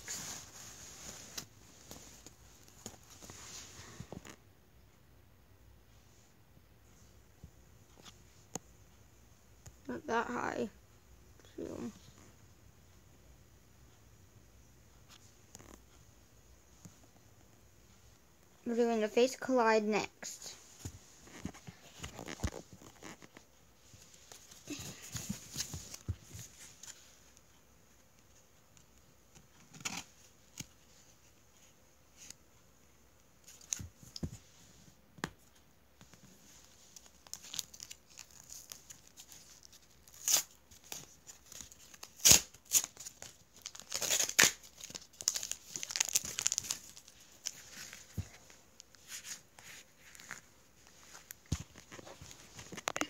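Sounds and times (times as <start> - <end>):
foil wrapper crinkling and tearing: 37.0 - 48.0.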